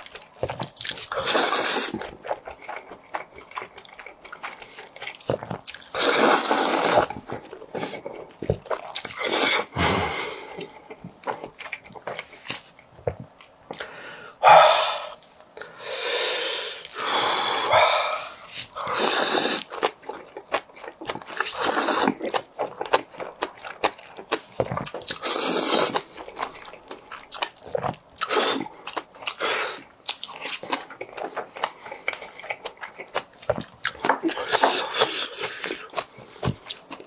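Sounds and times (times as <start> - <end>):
wet chewing: 0.0 - 14.2, 16.8 - 37.0
man slurping noodles: 1.2 - 2.0, 5.9 - 7.2, 9.2 - 10.6, 15.8 - 19.7, 25.2 - 26.0.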